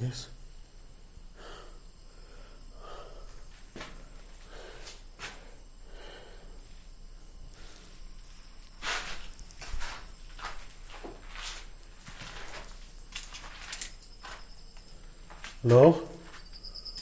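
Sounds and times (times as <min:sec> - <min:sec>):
footsteps: 0:03.3 - 0:05.5, 0:07.7 - 0:17.0
scrape: 0:08.8 - 0:10.0.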